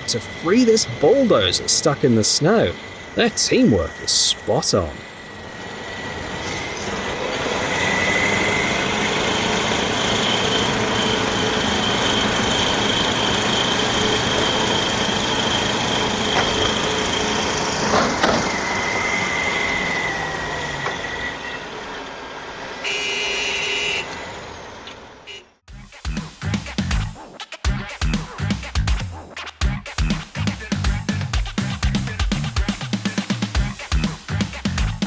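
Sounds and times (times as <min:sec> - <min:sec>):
high whine: 0:00.0 - 0:24.6
heavy diesel engines under load: 0:00.0 - 0:25.6.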